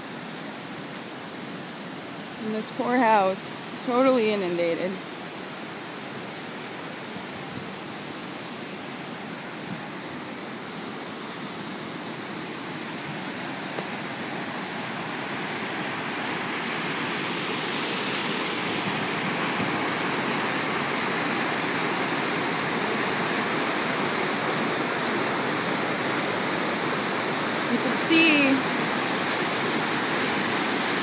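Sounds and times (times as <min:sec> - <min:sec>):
water rushing over spillway: 0:00.0 - 0:31.0.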